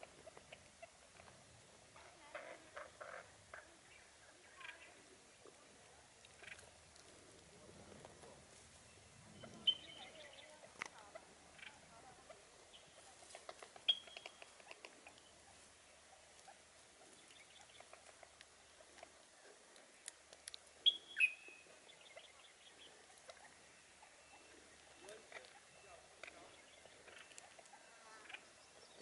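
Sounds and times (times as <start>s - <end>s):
birds pecking and rustling in grass: 0.0s - 29.0s
short high bird chirps: 13.9s - 14.4s, 20.8s - 21.6s.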